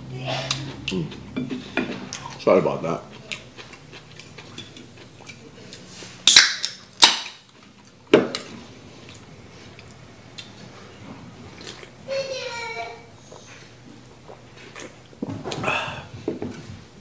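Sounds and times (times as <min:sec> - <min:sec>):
sharp crack: 0:06.3 - 0:07.4.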